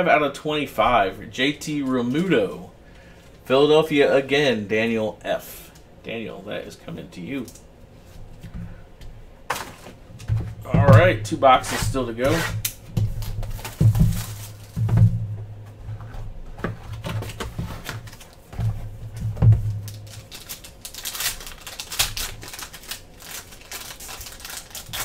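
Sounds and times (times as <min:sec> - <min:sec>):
foil pack tearing and crinkling: 0:12.2 - 0:14.8, 0:16.9 - 0:18.5, 0:19.7 - 0:25.0
cardboard box knocking: 0:13.0 - 0:15.4.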